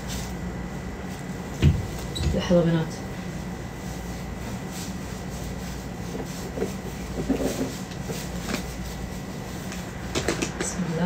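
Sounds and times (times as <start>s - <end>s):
garment steamer hum: 0.0s - 11.0s
fabric rubbing and handling: 3.3s - 9.8s.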